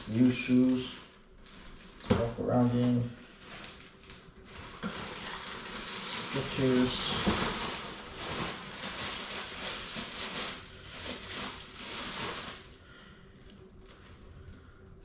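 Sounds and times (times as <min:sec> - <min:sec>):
packaging rustling and crinkling: 0:00.0 - 0:14.6.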